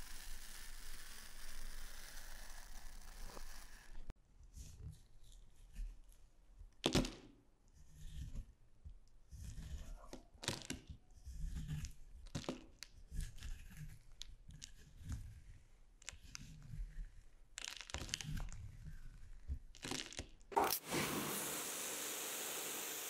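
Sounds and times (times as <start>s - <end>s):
knife scraping through powder: 0.0s - 4.1s, 9.3s - 10.1s, 11.1s - 12.1s, 13.0s - 17.3s.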